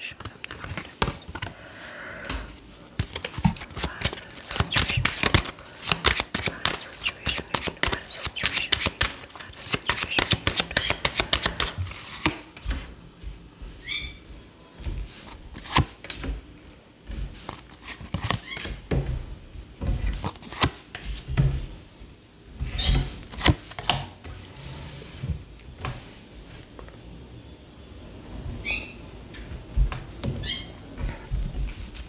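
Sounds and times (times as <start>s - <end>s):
cards shuffled and dealt on table: 0.0s - 1.6s, 3.0s - 12.9s, 15.0s - 16.4s, 17.3s - 18.8s, 20.0s - 21.6s, 22.9s - 24.1s
cards sliding hiss: 0.1s - 12.8s.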